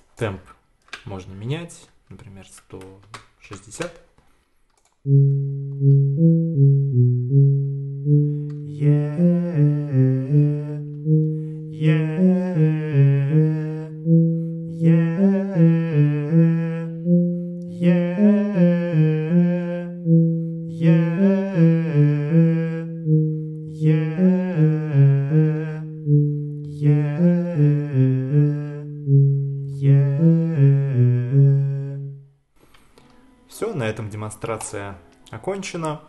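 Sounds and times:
man singing vocal exercise: 8.5 - 32.2.

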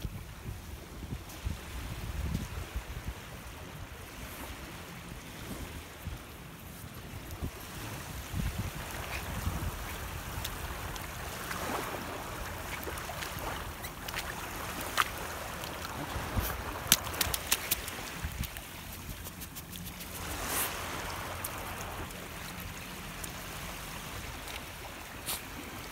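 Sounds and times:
wind rumbling on microphone: 0.0 - 24.5
small waves washing: 0.8 - 25.9
sharp clicks and splashes: 8.9 - 23.4.

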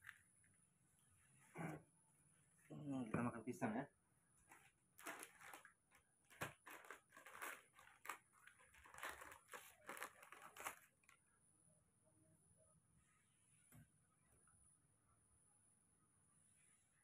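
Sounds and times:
hands crinkling and rustling: 4.4 - 11.2.

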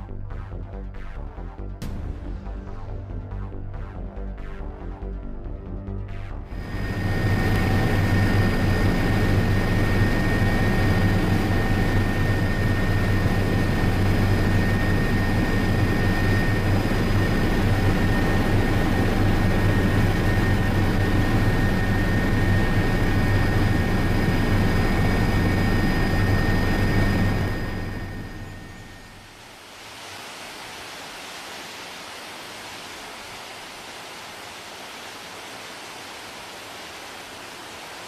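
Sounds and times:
aircraft cabin engine drone: 6.3 - 29.4
high-pitched whines: 6.5 - 29.4.

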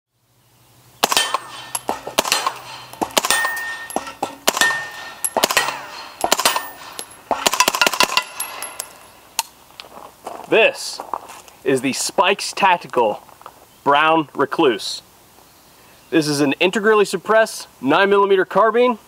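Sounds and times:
suppressed gunshots: 1.0 - 8.7
steel targets clanging: 1.0 - 9.2.

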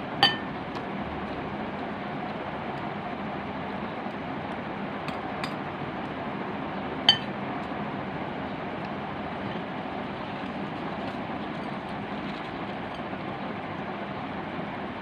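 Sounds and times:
steady background noise: 0.0 - 15.0
metal spoon clinking glass bowl: 0.2 - 0.5.

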